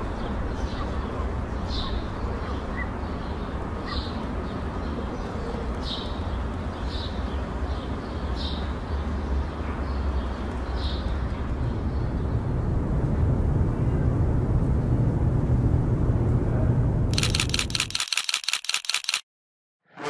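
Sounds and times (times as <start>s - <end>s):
steady low rumble: 11.1s - 18.0s.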